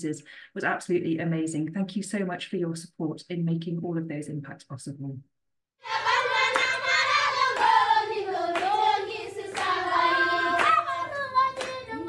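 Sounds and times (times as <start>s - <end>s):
group of voices singing: 5.8s - 12.0s
hand claps: 6.1s - 12.0s.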